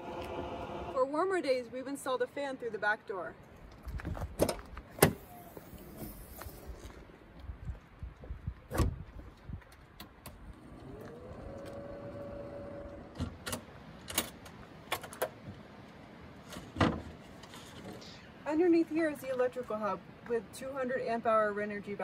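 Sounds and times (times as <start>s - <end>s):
electric fan humming: 0.0s - 1.0s.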